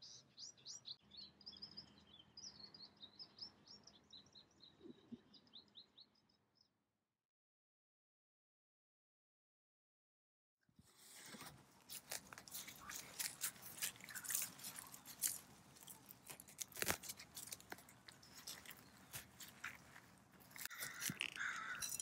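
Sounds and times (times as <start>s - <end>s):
hands digging through bark mulch: 11.0s - 21.9s.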